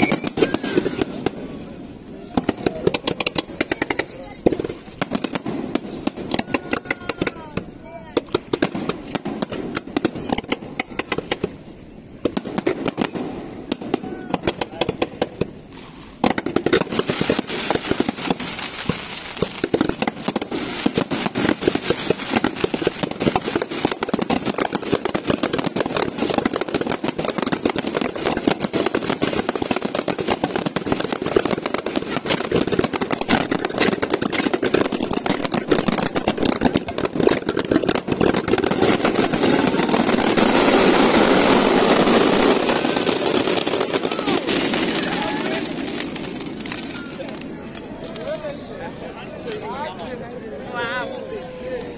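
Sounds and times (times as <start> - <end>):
fireworks crackling and popping: 0.0 - 51.9.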